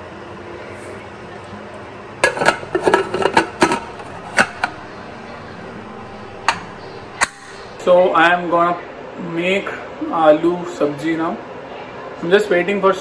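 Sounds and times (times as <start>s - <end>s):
metal lid clinking onto pot: 2.2s - 4.8s.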